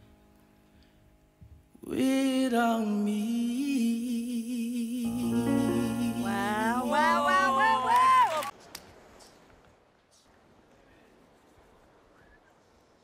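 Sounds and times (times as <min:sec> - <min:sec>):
man singing into a microphone: 0:01.8 - 0:07.9
low accompaniment chord: 0:05.0 - 0:07.8.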